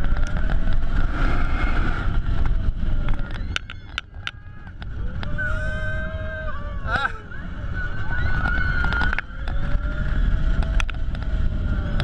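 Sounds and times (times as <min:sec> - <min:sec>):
roller coaster track rumble: 0:00.0 - 0:12.0
wind on microphone: 0:00.0 - 0:12.0.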